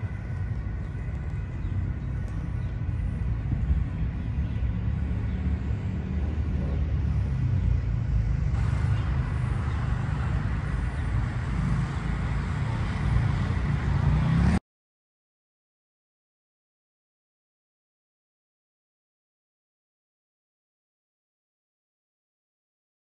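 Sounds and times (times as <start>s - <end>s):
broad traffic hiss: 0.0s - 14.5s
low rumble of road traffic: 0.0s - 14.6s.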